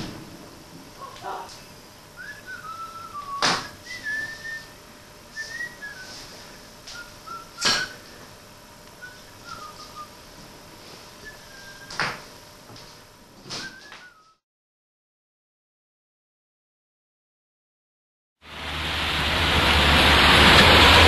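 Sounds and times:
person whistling a tune: 0:02.2 - 0:08.2, 0:09.0 - 0:10.1, 0:11.2 - 0:12.0, 0:13.6 - 0:14.4.

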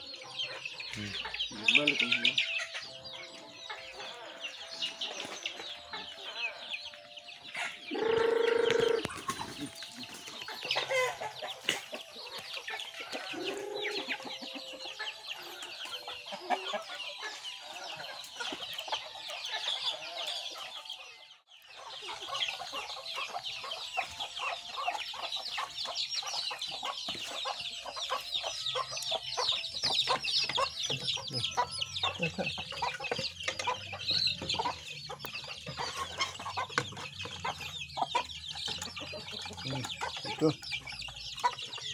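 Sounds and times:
chicks peeping: 0:00.0 - 0:41.9
hens clucking: 0:00.0 - 0:41.9
loud low chicken call: 0:07.9 - 0:09.2.

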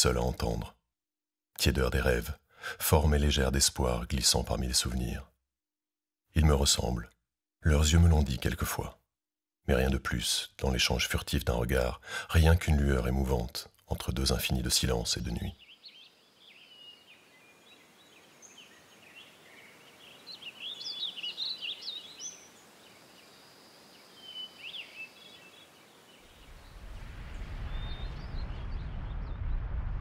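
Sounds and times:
small birds chirping: 0:13.9 - 0:29.2
low rumble: 0:26.6 - 0:30.0.

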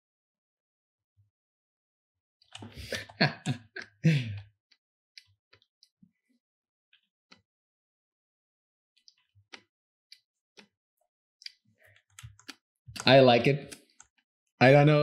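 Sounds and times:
man's voice: 0:13.0 - 0:13.7, 0:14.6 - 0:15.0.

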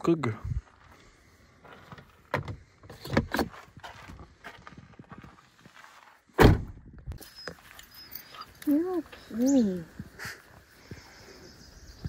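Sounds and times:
loud thump: 0:06.4 - 0:06.9.

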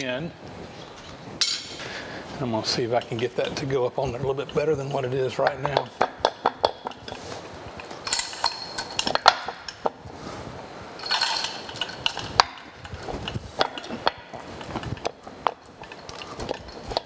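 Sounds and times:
metal clinks and knocks: 0:02.9 - 0:10.0, 0:11.0 - 0:17.0
hoist chain rattling: 0:07.8 - 0:09.8, 0:11.0 - 0:17.0.

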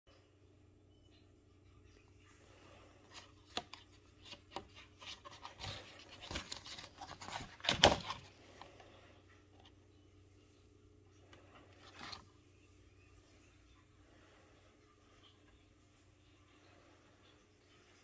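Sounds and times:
paper card rustling: 0:03.0 - 0:08.4, 0:11.8 - 0:12.4.

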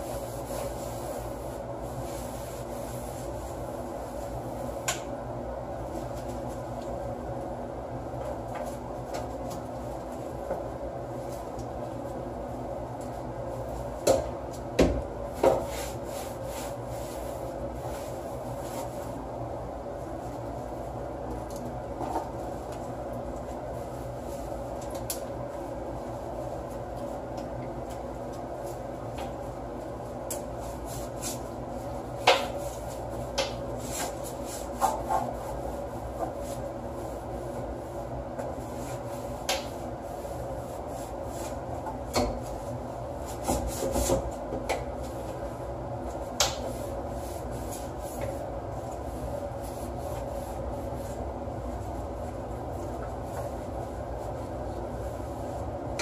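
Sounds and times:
cloth rubbing on furniture: 0:00.0 - 0:04.8, 0:15.3 - 0:21.3, 0:28.0 - 0:41.8, 0:45.0 - 0:55.8
steady background hum: 0:00.0 - 0:56.0.

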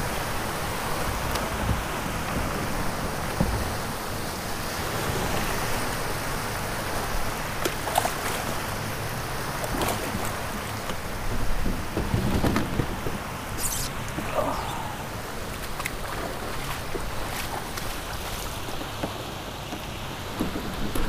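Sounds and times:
water lapping against hull: 0:00.0 - 0:21.0
short splashy hiss: 0:13.5 - 0:14.1.

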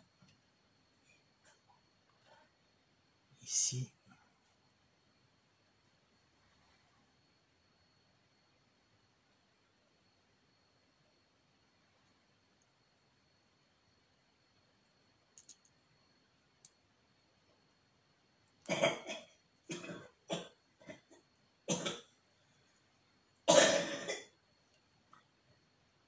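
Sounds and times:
faint clicks: 0:15.3 - 0:15.8, 0:16.6 - 0:16.8
person coughing: 0:18.7 - 0:21.1, 0:21.7 - 0:22.1, 0:23.5 - 0:24.3.

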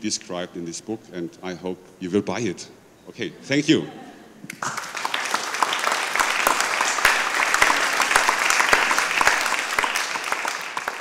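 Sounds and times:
audience applauding: 0:04.5 - 0:11.0.

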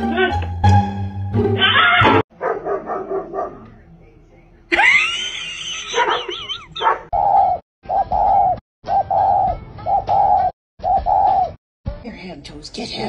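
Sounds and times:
dove cooing: 0:07.2 - 0:11.6.

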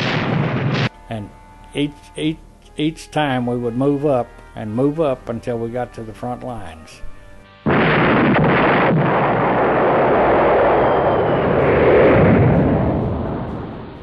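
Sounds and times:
battle artillery and gunfire: 0:00.0 - 0:00.9, 0:07.7 - 0:10.8.

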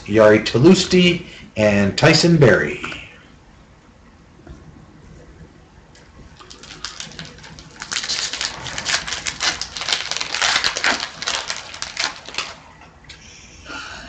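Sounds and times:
card pack wrapper tearing and crinkling: 0:06.4 - 0:12.7.

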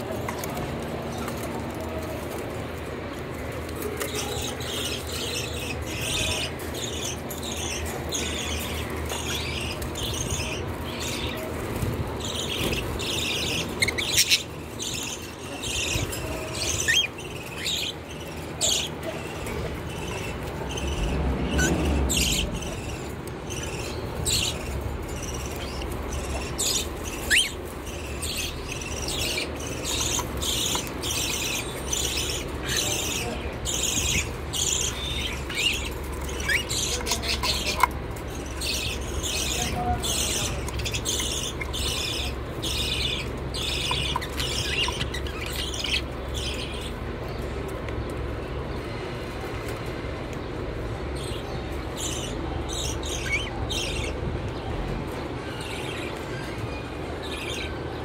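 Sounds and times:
parrots chirping: 0:04.0 - 0:47.2, 0:51.2 - 0:54.2.

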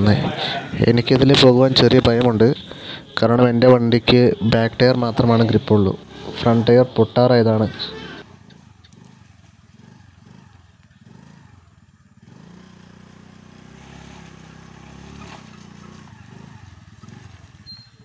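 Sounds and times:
scooter engine running at low revs: 0:08.2 - 0:18.0.

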